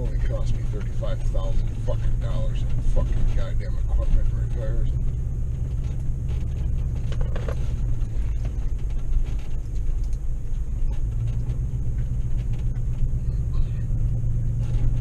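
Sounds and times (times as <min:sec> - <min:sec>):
vehicle rumbling on dirt track: 0:00.0 - 0:15.0.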